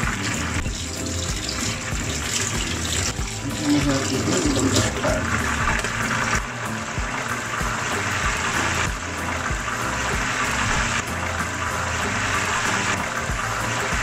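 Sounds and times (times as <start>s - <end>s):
low regular beat: 0.0s - 14.0s
oil sizzling and bubbling: 0.0s - 14.0s.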